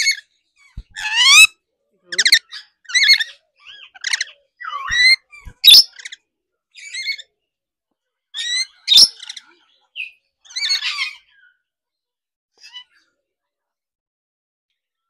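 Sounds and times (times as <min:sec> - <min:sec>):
lorikeets squawking and chirping: 0:00.0 - 0:01.5, 0:02.2 - 0:06.2, 0:06.8 - 0:07.3, 0:08.4 - 0:11.6.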